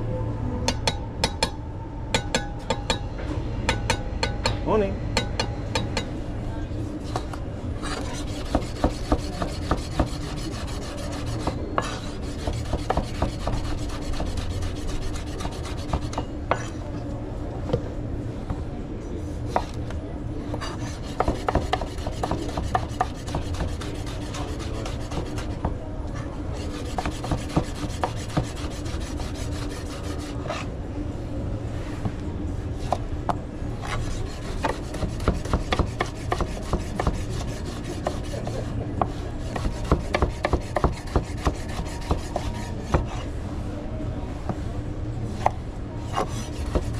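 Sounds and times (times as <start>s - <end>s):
steady low hum: 0.0s - 46.9s
utensil scraping and rubbing: 7.8s - 16.1s, 20.6s - 25.6s, 26.5s - 30.7s, 33.8s - 43.4s, 46.0s - 46.9s.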